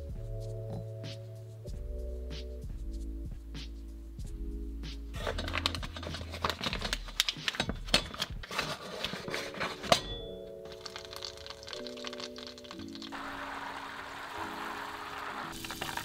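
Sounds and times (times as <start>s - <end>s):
paper wrapper crinkling: 5.2s - 13.5s, 15.4s - 16.0s.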